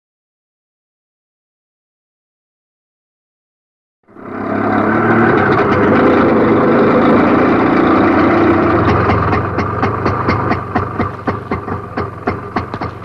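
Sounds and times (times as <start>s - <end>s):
auto-rickshaw engine running: 4.1s - 13.0s.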